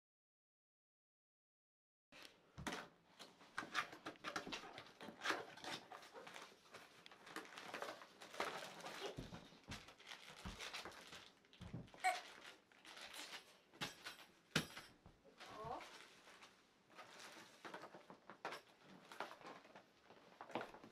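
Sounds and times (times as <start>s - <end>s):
plastic wrapping crinkling: 4.1s - 13.8s.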